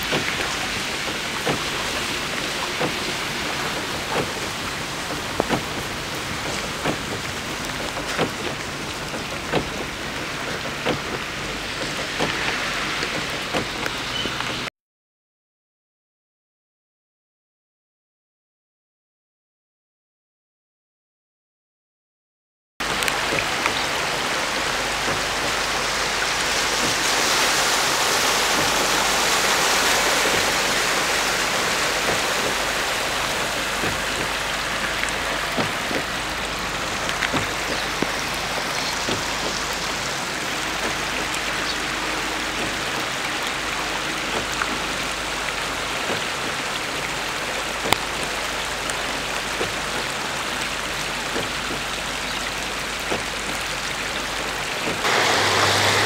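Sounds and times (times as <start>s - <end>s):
rain falling: 0.0s - 14.7s, 22.8s - 56.0s
rainwater running in street: 0.0s - 14.7s, 22.8s - 56.0s
water drips: 22.8s - 56.0s.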